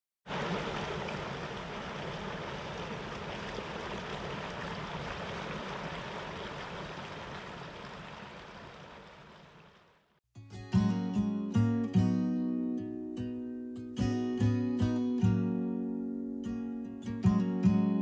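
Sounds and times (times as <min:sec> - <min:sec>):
rushing water: 0:00.2 - 0:10.0.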